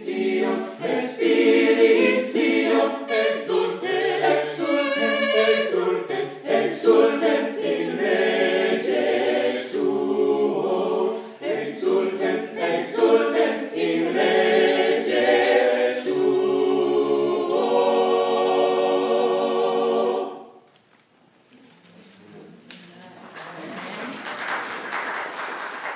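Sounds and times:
choir singing a cappella: 0.0 - 20.7.

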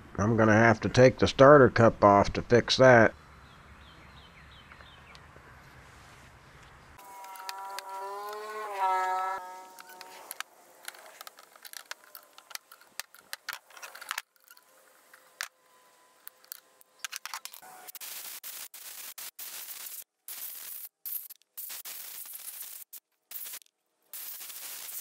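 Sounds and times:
clicks and scrapes of wrench: 9.8 - 15.5.

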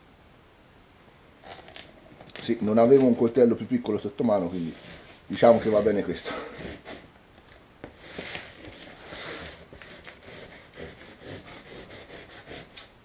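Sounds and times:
knife cutting cardboard: 8.0 - 12.9.

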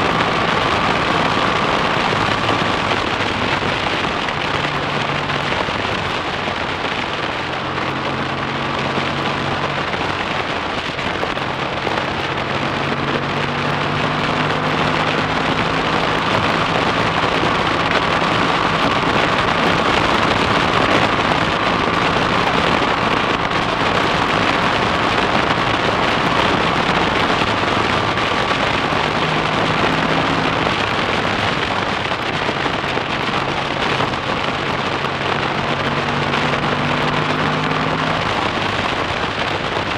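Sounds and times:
motorcycle engine running: 0.0 - 39.9
road noise: 0.0 - 39.9
wind rush over microphone: 0.0 - 39.9.

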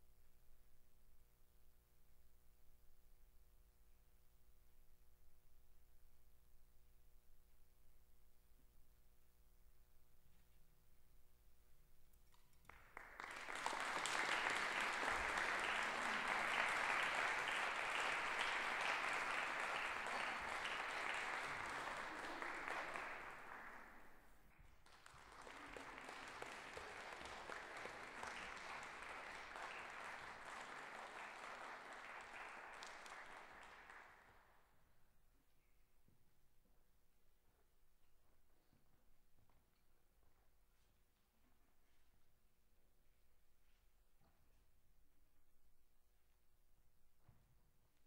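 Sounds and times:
audience applauding: 12.6 - 24.2, 24.8 - 34.4.

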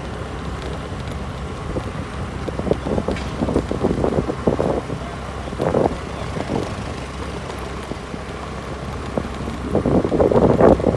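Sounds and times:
vehicle low rumble: 0.0 - 10.9
wind noise on microphone: 1.6 - 7.4, 9.1 - 10.9.

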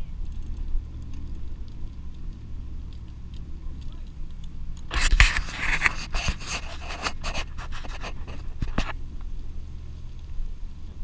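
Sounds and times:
rustling and scratches: 0.0 - 9.3
bicycle road rumble: 0.0 - 11.0.

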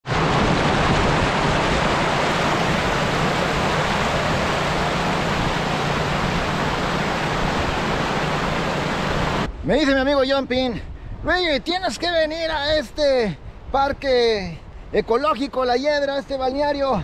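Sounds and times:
flowing water rushing: 0.0 - 17.0.

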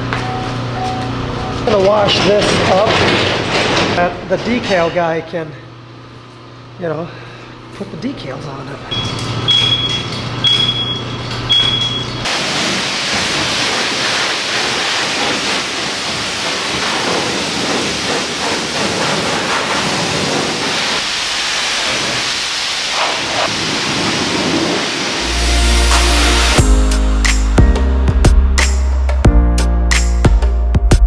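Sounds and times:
short high beeps: 8.9 - 12.2
pressure wand spraying water: 12.2 - 26.6
low hum: 25.2 - 27.2.

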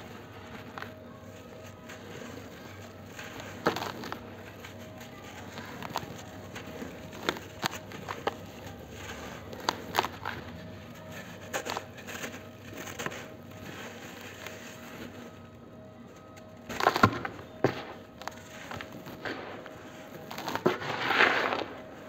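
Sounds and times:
powder block crunching in hands: 16.2 - 22.0.

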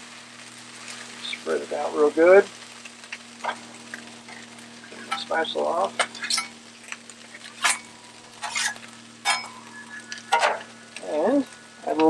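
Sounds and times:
rice sizzling on griddle: 0.0 - 12.0
metal spatula scraping: 6.0 - 6.6, 7.3 - 10.7.

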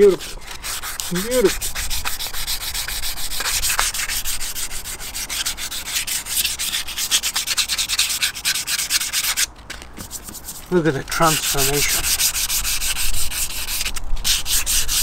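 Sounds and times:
hand sanding metal wheel: 0.0 - 15.0.

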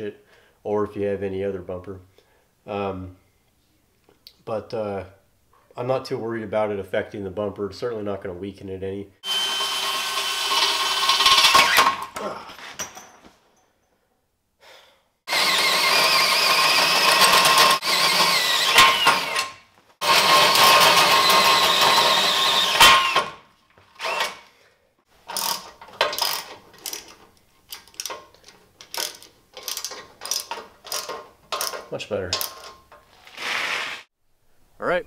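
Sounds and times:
electric drill whining under load: 9.2 - 11.9, 15.3 - 23.3, 24.0 - 24.5
ratchet strokes: 25.3 - 28.2, 28.8 - 32.7.

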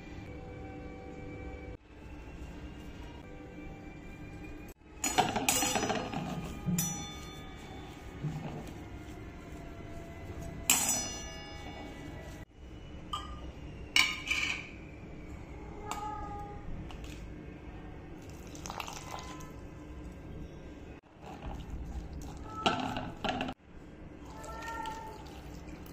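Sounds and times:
metal bowl clinking: 5.0 - 9.2, 10.4 - 12.4, 13.1 - 14.8.

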